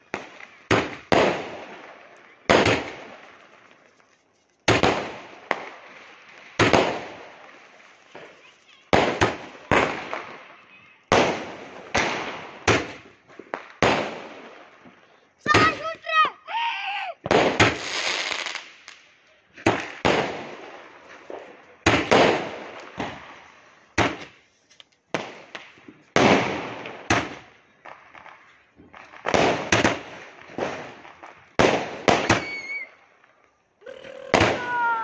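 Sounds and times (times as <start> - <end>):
fireworks bangs: 0.0 - 24.5, 25.1 - 33.6, 34.2 - 35.0.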